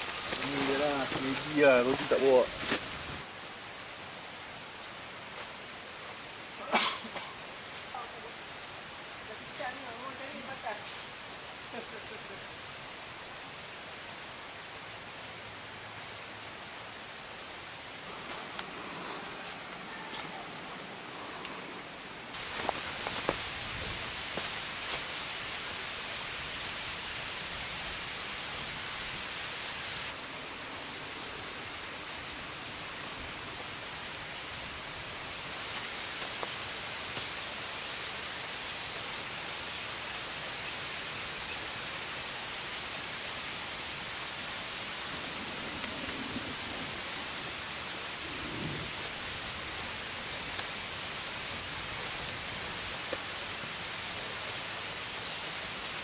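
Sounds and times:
rain-like hiss: 0:00.0 - 0:56.0
faint high steady tone: 0:30.1 - 0:35.2.

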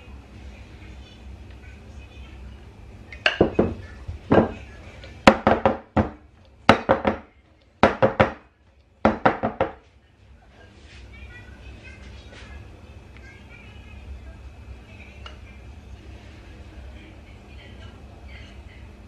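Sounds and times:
cake pan knocking on counter: 0:03.3 - 0:04.6, 0:05.3 - 0:08.4, 0:09.0 - 0:09.8.

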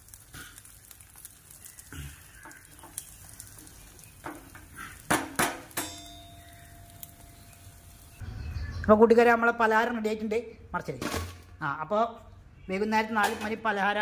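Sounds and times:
food frying: 0:00.0 - 0:08.2
metal clanks ringing: 0:05.7 - 0:07.1.

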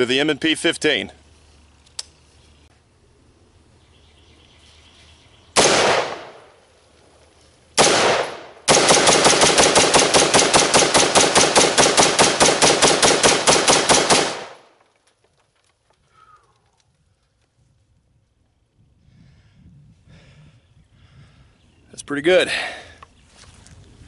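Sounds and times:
rifle shots with echo: 0:05.6 - 0:06.6, 0:07.8 - 0:14.8.

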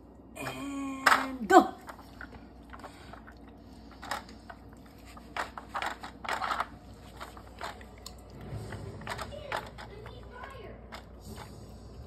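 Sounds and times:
plastic puzzle feeder clicking and scraping: 0:03.9 - 0:07.9, 0:08.6 - 0:11.6.

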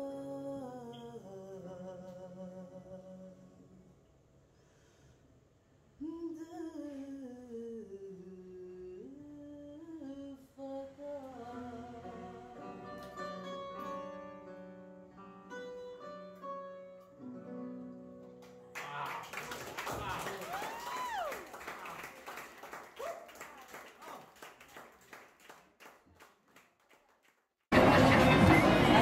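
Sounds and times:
woman singing: 0:00.0 - 0:03.5, 0:06.0 - 0:13.1.

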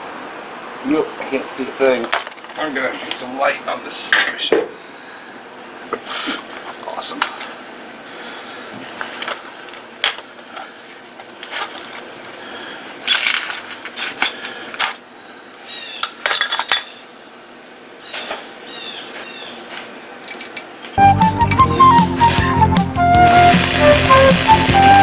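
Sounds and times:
background music: 0:21.0 - 0:25.0.

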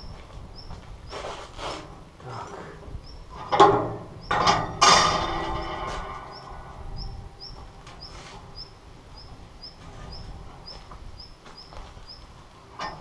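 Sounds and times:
bird chirping: 0:00.0 - 0:01.3, 0:02.9 - 0:04.6, 0:05.6 - 0:12.4
wire rack clanking on metal: 0:03.4 - 0:06.9, 0:12.8 - 0:13.0.

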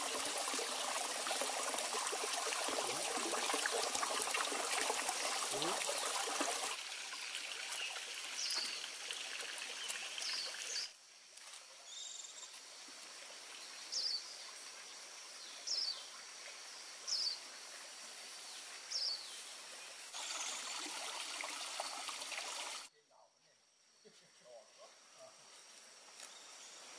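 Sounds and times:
water dripping into a pond: 0:00.0 - 0:11.5, 0:19.7 - 0:22.9.

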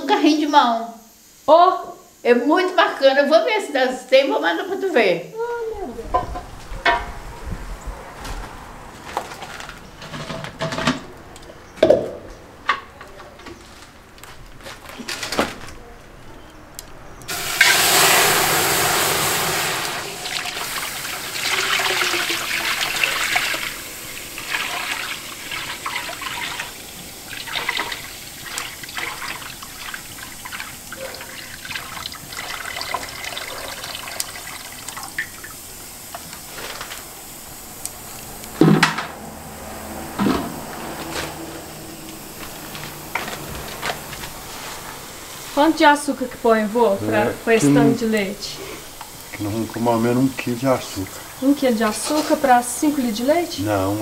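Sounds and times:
milk pouring into metal pan: 0:17.3 - 0:35.6.

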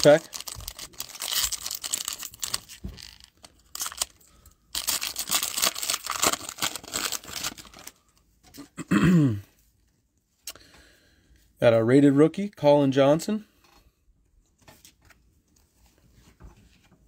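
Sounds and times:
plastic wrapper crinkling: 0:00.0 - 0:08.2.

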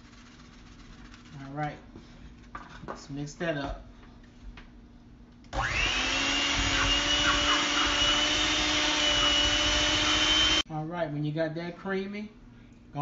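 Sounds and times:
electric hand mixer whining: 0:05.5 - 0:10.6
beaters churning batter in metal bowl: 0:05.6 - 0:10.6.

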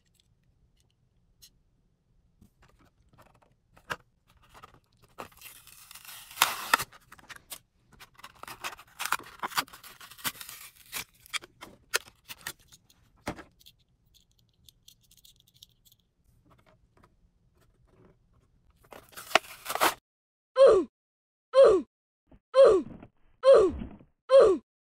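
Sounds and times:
packaging rustling and tearing: 0:04.4 - 0:12.9, 0:18.8 - 0:20.0.

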